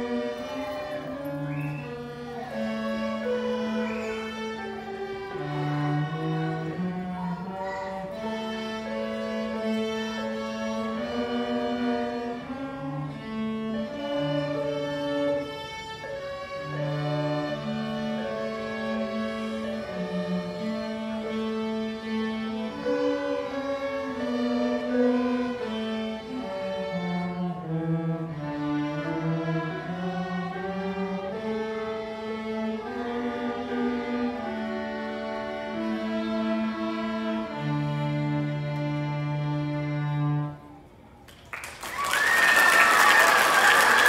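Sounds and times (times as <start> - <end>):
string orchestra playing march: 0.0 - 40.8
applause: 41.2 - 44.0.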